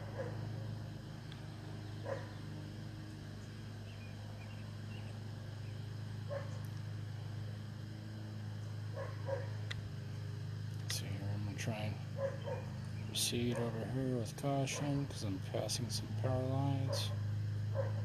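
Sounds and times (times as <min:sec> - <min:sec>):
dog barking: 0:00.0 - 0:00.4, 0:02.0 - 0:02.4, 0:06.3 - 0:06.6, 0:09.0 - 0:09.6, 0:12.2 - 0:12.7, 0:13.5 - 0:13.8, 0:14.7 - 0:15.0, 0:16.8 - 0:18.0
steady low hum: 0:00.0 - 0:18.0.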